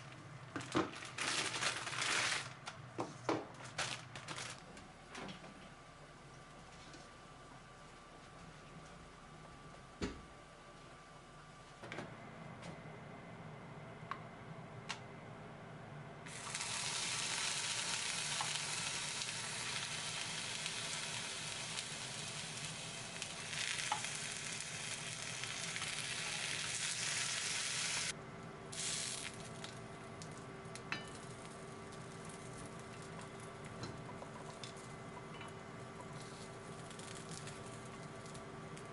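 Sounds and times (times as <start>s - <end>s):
sausages sizzling in a skillet: 16.3s - 28.1s, 28.7s - 29.8s.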